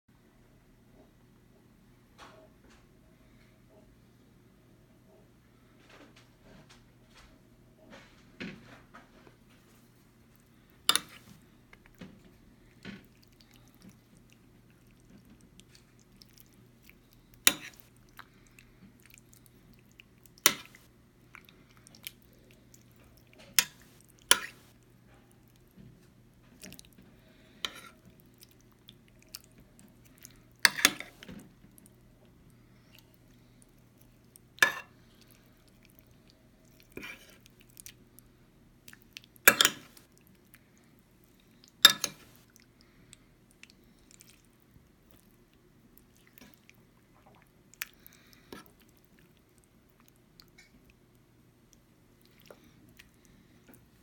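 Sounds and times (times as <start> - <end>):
wet stew sounds: 9.6 - 54.0
cutlery clinking on ceramic dish: 10.9 - 11.3, 39.5 - 40.0, 41.8 - 42.3.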